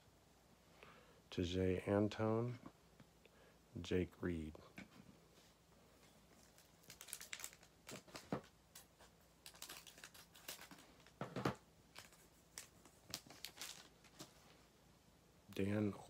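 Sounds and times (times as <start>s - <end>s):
foil wrapper tearing and crinkling: 6.4s - 11.2s, 12.0s - 14.3s.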